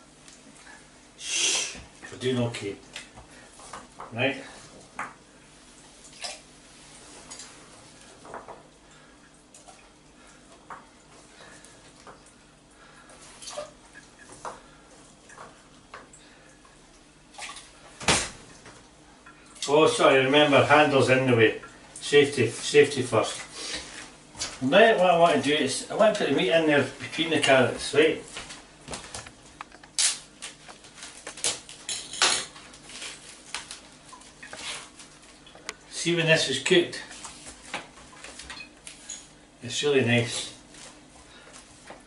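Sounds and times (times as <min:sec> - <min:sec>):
plastic wrapping rustling: 0:30.0 - 0:31.9, 0:32.6 - 0:35.3.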